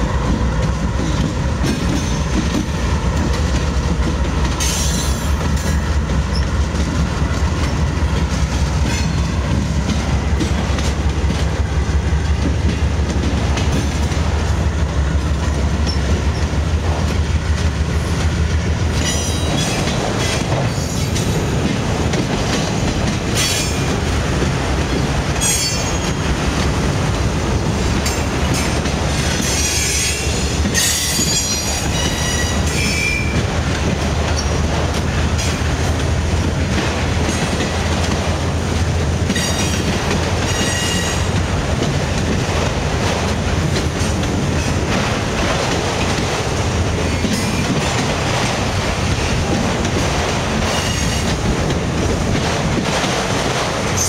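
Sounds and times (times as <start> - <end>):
train wheels rumbling on rail: 0.0 - 54.0
wheels clacking over rail joints: 0.0 - 54.0.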